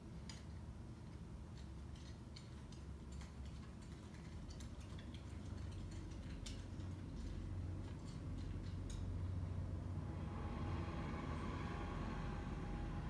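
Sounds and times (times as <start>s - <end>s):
low rumble of wind: 4.8s - 13.0s.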